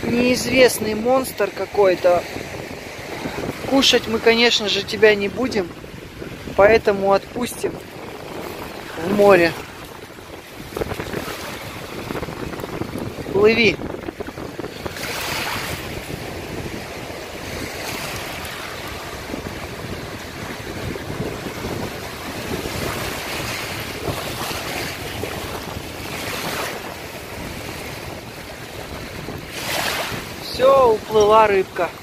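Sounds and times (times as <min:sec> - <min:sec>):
waves washing over pebbles: 0:00.0 - 0:32.0
wind buffeting microphone: 0:00.0 - 0:32.0.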